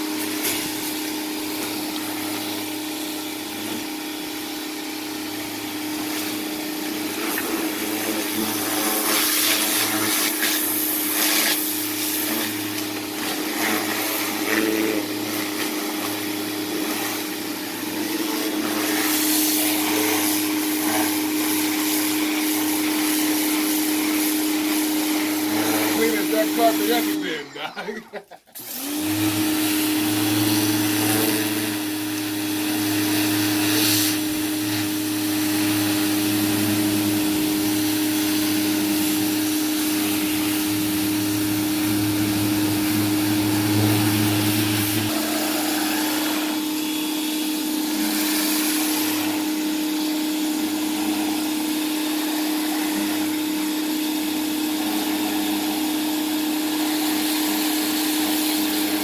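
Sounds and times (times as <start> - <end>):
pressure washer hum: 0.0 - 59.0
water spray hiss: 8.2 - 12.8, 18.8 - 24.9, 33.3 - 34.8, 36.4 - 49.5.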